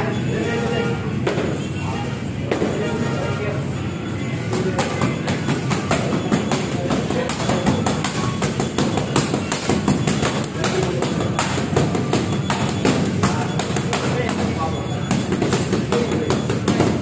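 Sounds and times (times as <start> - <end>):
boxing gloves slapping mitts: 4.5 - 17.0
music with drum beat: 4.8 - 17.0.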